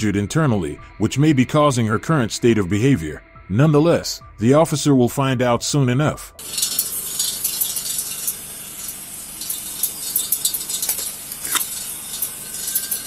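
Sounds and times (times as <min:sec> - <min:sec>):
small clicks and crackles: 0:06.4 - 0:13.0.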